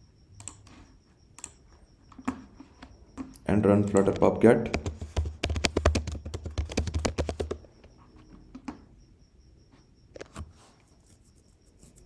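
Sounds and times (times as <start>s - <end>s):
computer keyboard clicks: 0.4s - 0.6s, 1.4s - 1.6s, 3.3s - 7.6s.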